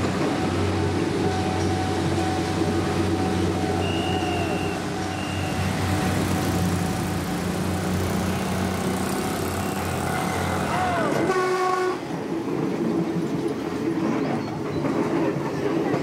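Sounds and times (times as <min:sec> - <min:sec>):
motorcycle and scooter engines: 0:00.0 - 0:11.2
short high-pitched beeps: 0:03.7 - 0:05.7.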